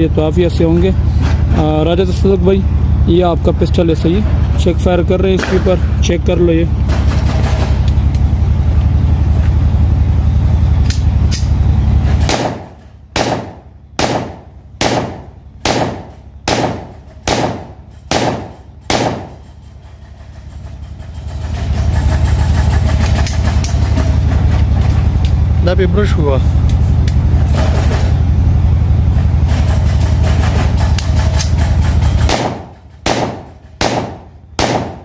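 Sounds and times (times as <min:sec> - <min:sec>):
steady low hum: 0:00.0 - 0:35.0
pistol shots with echo: 0:12.3 - 0:19.4, 0:32.3 - 0:35.0.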